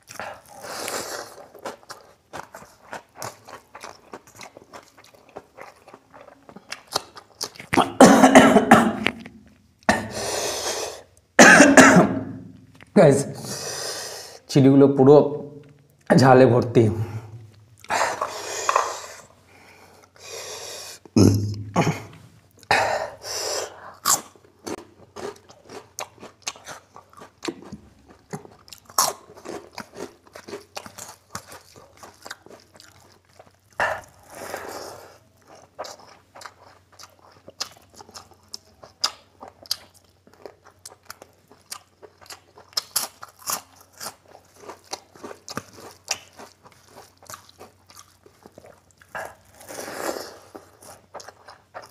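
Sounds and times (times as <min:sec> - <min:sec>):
crunchy bites: 0:00.0 - 0:08.0, 0:39.0 - 0:51.9
man chewing and smacking: 0:00.0 - 0:08.0, 0:17.4 - 0:19.3, 0:23.7 - 0:51.9.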